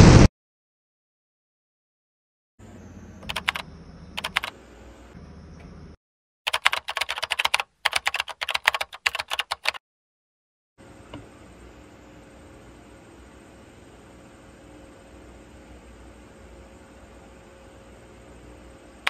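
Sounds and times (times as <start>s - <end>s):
faint steady hum: 2.6s - 6.0s, 10.8s - 19.0s
typing on computer keyboard: 3.2s - 3.6s, 4.2s - 4.5s, 6.5s - 9.8s.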